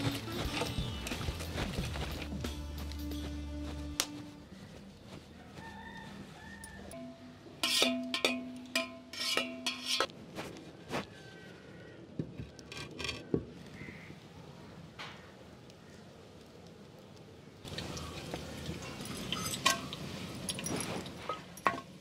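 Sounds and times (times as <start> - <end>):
cooking vessels knocking: 7.0 - 10.1, 21.3 - 22.0.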